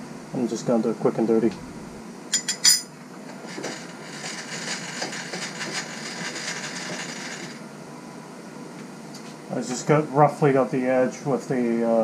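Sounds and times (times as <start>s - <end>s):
milling machine spindle running: 3.3s - 7.7s.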